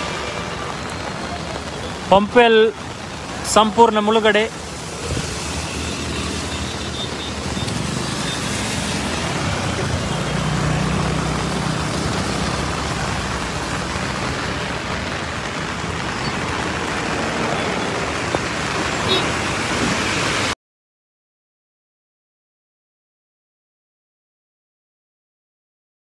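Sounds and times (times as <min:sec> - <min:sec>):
heavy rain: 0:00.0 - 0:20.6
road traffic: 0:00.0 - 0:20.6.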